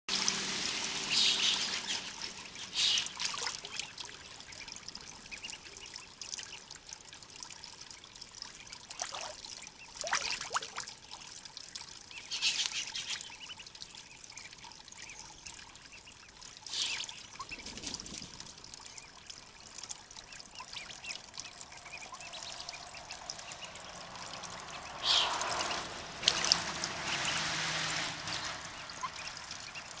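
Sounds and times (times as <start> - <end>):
ducks splashing in water: 0.1 - 6.6, 8.6 - 11.2, 16.9 - 30.0
faint steady water hiss: 0.1 - 30.0
water trickling: 0.1 - 30.0.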